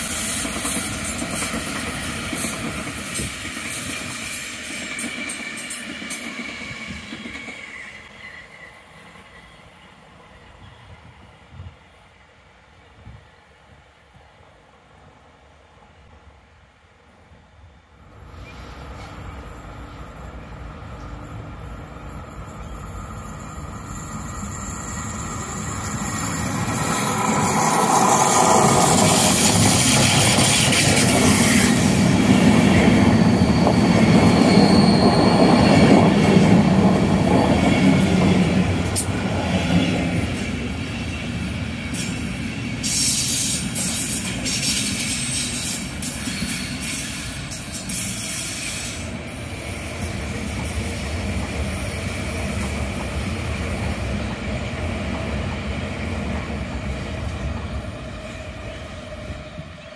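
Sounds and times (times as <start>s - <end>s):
passenger train passing: 0.0s - 59.9s
wheel squeal: 32.5s - 37.9s.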